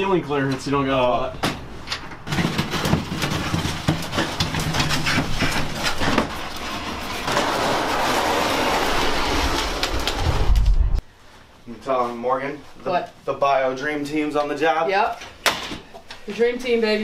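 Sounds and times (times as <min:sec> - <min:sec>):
rushing rumble: 0:06.8 - 0:11.0.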